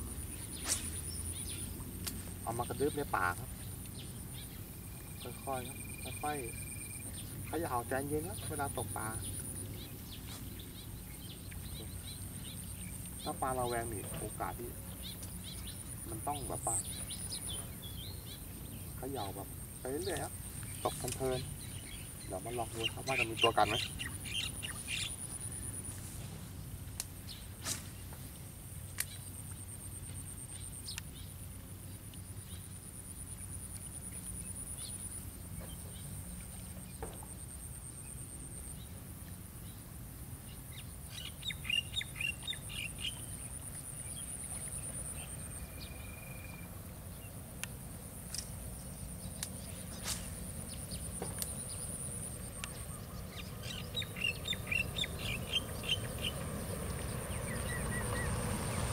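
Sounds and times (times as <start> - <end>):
high pulsing insect trill: 0.0 - 10.2, 40.7 - 58.9
birds chirping: 0.0 - 39.0, 39.6 - 58.9.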